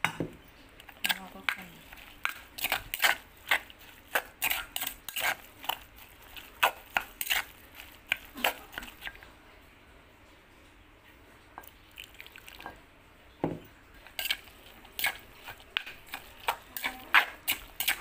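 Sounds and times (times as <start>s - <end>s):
spoon scraping stone mortar: 0.8s - 9.2s, 14.0s - 18.0s.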